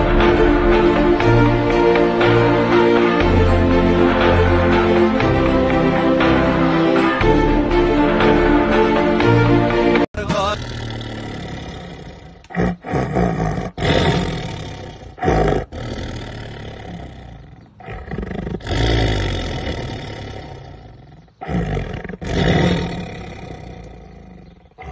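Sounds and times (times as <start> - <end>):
tiger snarling and roaring: 10.5 - 24.9.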